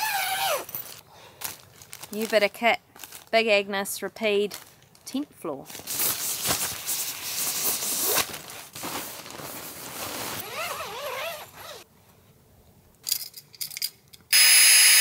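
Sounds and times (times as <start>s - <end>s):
nylon sack rustling: 5.7s - 11.9s.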